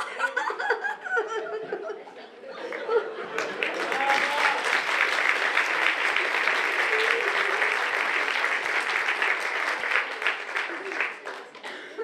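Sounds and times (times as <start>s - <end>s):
audience applauding: 3.3s - 12.0s.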